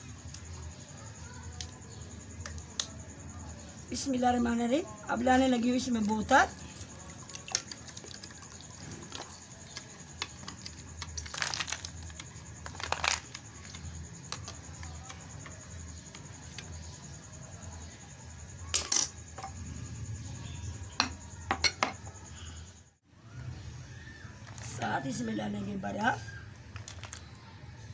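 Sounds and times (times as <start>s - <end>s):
spoon stirring a drink: 6.0s - 17.0s.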